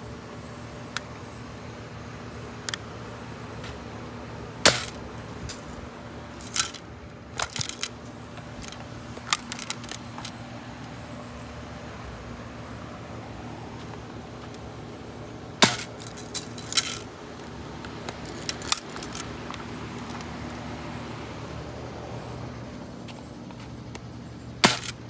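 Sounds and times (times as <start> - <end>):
metallic clicks and knocks: 15.8 - 19.3.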